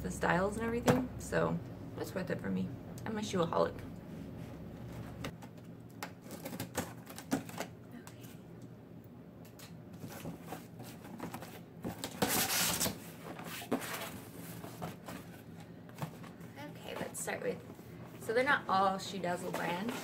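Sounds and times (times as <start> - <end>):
cardboard scraping: 10.0 - 15.5, 19.4 - 20.0.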